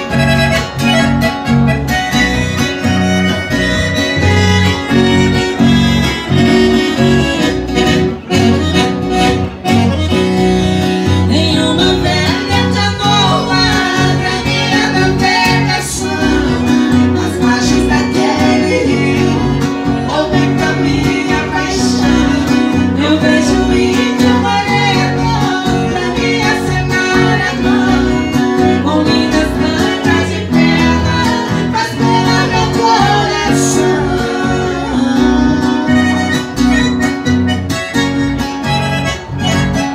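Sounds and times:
acoustic guitar: 0.0s - 39.9s
bass guitar: 0.0s - 39.9s
piano accordion: 0.0s - 39.9s
woman singing: 11.2s - 36.6s.

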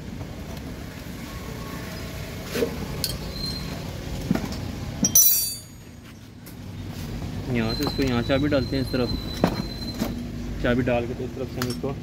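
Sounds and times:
low background hum: 0.0s - 8.3s
metal tools clinking: 5.0s - 6.3s.

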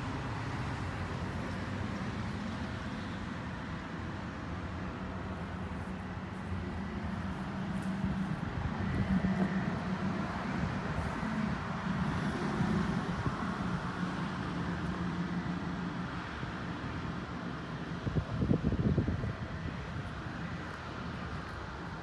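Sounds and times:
low engine hum: 0.0s - 22.0s
rush of passing vehicles: 0.0s - 22.0s.

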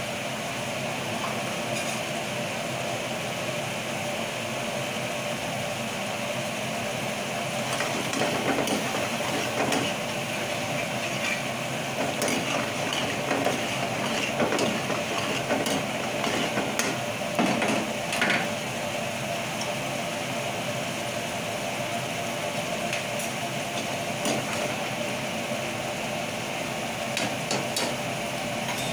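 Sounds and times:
steady mechanical hum: 0.0s - 28.9s
metal ladle scraping pan: 7.7s - 17.0s.

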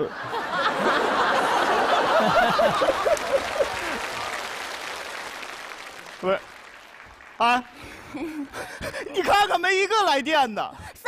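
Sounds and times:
audience laughter: 0.0s - 4.4s
audience applauding: 0.8s - 9.0s.

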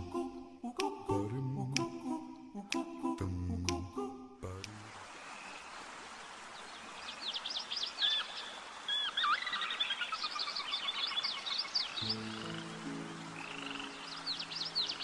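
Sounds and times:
background hiss: 0.0s - 15.0s
small birds chirping: 5.1s - 15.0s.

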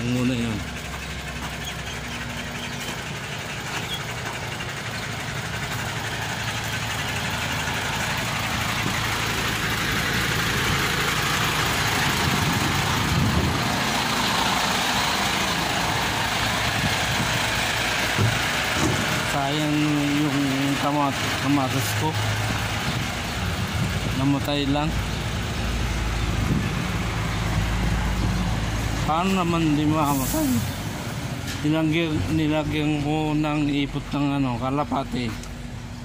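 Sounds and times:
engine humming: 0.0s - 36.0s.

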